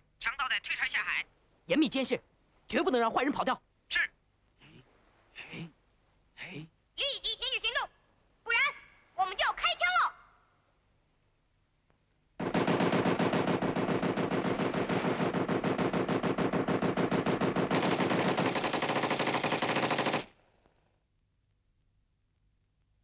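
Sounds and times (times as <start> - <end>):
machine-gun fire: 12.4 - 20.5.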